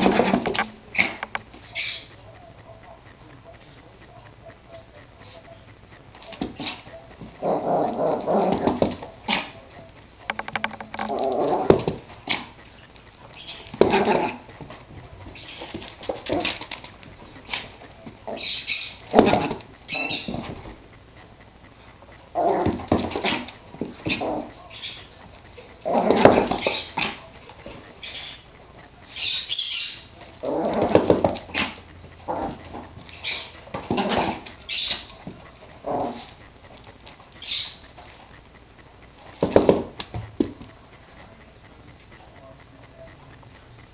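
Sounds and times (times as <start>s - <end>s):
small dog barking and growling: 0.0s - 5.6s, 6.2s - 9.9s, 11.0s - 20.7s, 22.2s - 28.4s, 29.0s - 36.5s.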